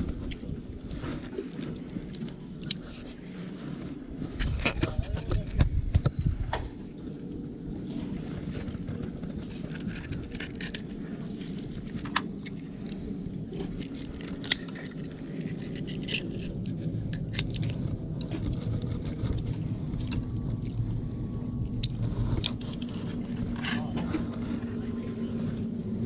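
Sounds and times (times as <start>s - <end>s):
steady low rumble: 0.0s - 26.0s.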